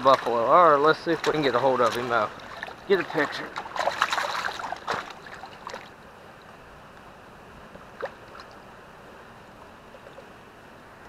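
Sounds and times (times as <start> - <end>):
small water splashes: 0.0 - 6.0, 8.0 - 8.7
water lapping among rocks: 0.0 - 6.0.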